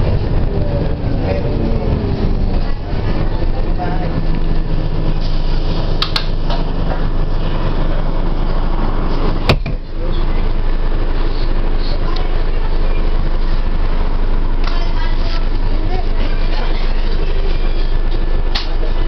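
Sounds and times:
bus engine and road drone: 0:00.0 - 0:19.0
sharp knock: 0:09.5 - 0:09.8.

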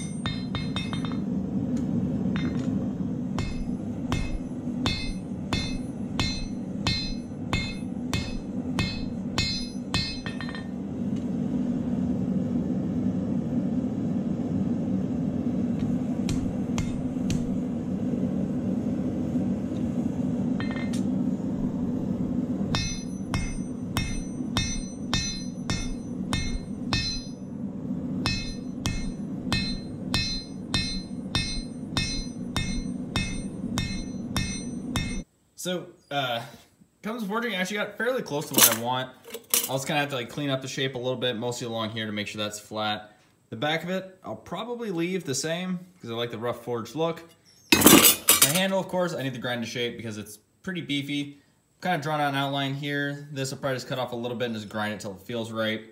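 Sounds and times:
hammer striking metal on anvil: 0:00.0 - 0:01.3, 0:02.3 - 0:02.7, 0:03.4 - 0:10.8, 0:16.3 - 0:17.6, 0:20.6 - 0:21.1, 0:22.7 - 0:27.5, 0:28.2 - 0:35.2
low hum: 0:00.0 - 0:35.3.

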